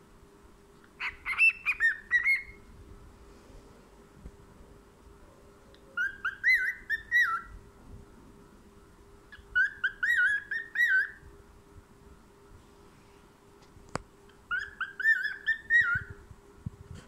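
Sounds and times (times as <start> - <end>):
cockatiel whistling: 1.0 - 2.6, 6.0 - 7.5, 9.3 - 11.2, 14.5 - 16.2.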